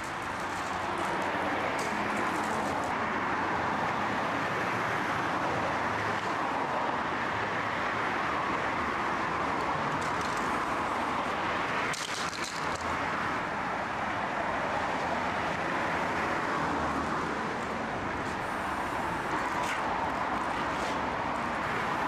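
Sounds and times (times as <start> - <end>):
steady traffic noise: 0.0 - 22.0.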